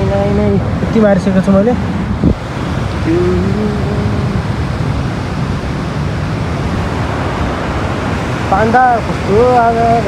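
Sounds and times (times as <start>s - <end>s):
person's voice: 0.0s - 1.8s, 3.0s - 4.6s, 8.5s - 10.0s
stream rushing over rocks: 0.0s - 10.0s.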